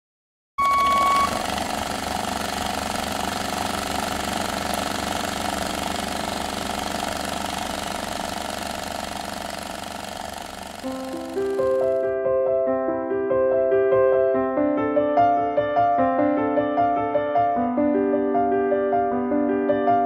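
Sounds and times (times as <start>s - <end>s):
rough mechanical drone: 0.7s - 12.1s.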